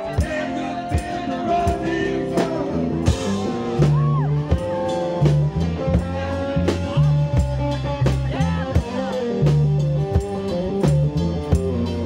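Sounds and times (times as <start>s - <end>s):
person singing: 0.0s - 9.5s
drum kit beat: 0.0s - 12.0s
upright bass: 0.0s - 12.0s.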